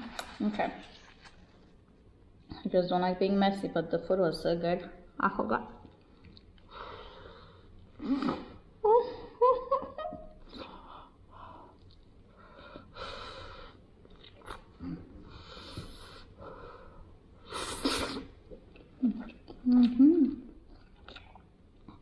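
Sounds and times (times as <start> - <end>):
woman breathing heavily: 10.6 - 13.8
woman humming: 19.0 - 20.6.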